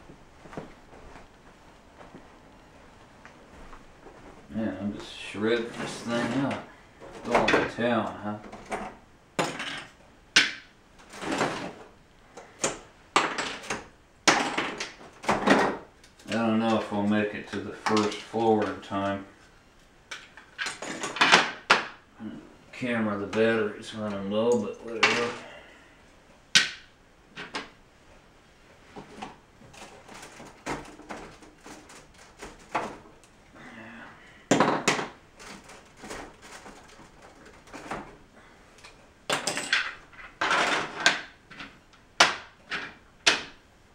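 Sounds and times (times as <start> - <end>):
plastic bricks clattering: 29.7 - 33.2.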